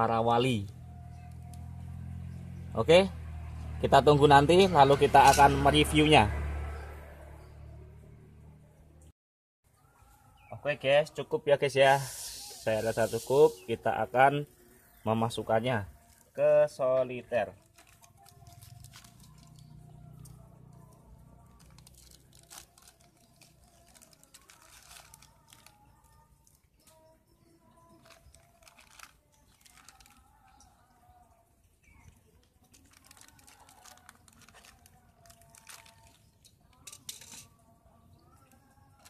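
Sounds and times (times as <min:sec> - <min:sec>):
plastic bag crinkling: 0:17.5 - 0:27.1, 0:27.7 - 0:30.8, 0:32.3 - 0:37.5.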